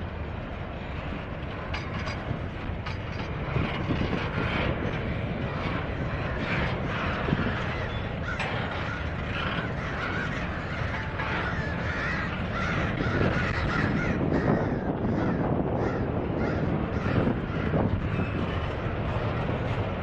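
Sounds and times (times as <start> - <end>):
freight train rumbling past: 0.0 - 20.0
crows cawing: 6.1 - 19.6.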